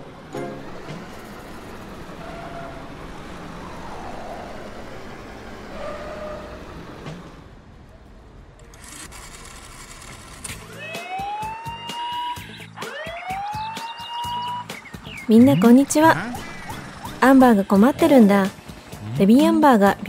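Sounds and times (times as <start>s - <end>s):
rising siren: 0.6s - 7.3s, 10.6s - 14.8s
cartoon engine rumble: 15.6s - 19.8s.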